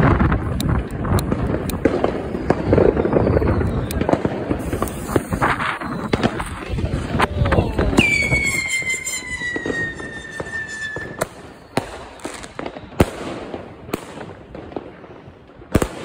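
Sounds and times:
firework bangs: 0.0 - 16.0
firework whistle falling in pitch: 7.5 - 12.9.

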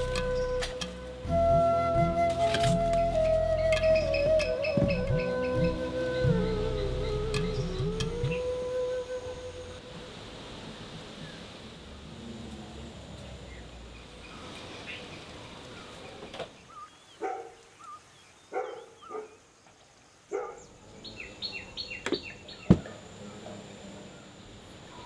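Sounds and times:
bird chirping: 0.0 - 9.8, 13.4 - 25.0
dog barking: 17.2 - 17.6, 18.5 - 19.4, 20.3 - 20.7.

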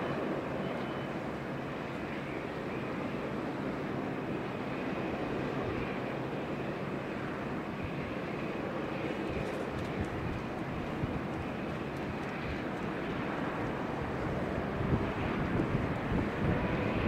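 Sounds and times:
faint high whine: 0.0 - 10.2
jet airliner engines running: 0.0 - 17.0.

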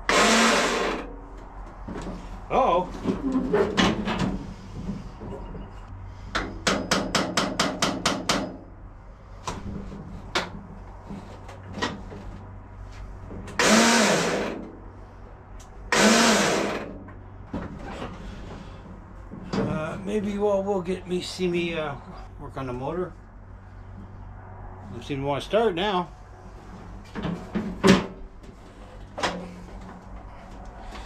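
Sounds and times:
starter motor whirring: 0.1 - 1.1, 13.5 - 14.6, 15.9 - 16.9.

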